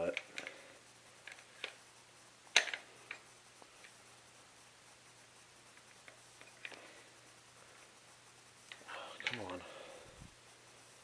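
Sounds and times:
shotgun parts clicking: 2.5 - 3.2.

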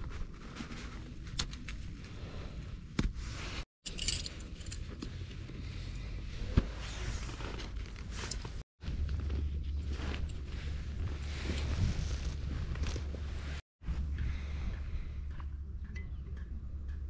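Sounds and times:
metal tent pegs clinking: 3.8 - 5.4.

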